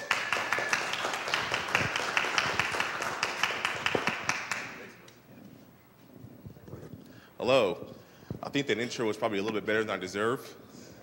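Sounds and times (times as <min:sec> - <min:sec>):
small audience applauding: 0:00.0 - 0:05.0.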